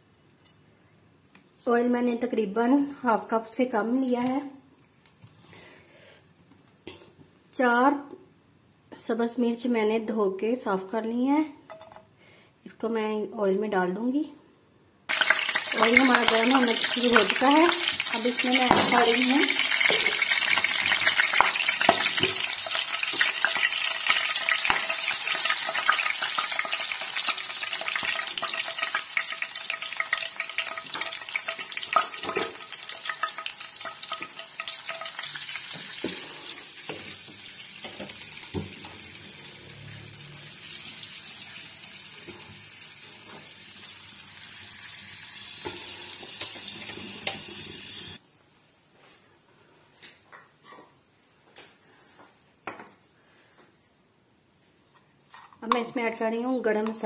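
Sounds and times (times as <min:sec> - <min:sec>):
chillies sizzling in hot oil: 0:15.1 - 0:48.3.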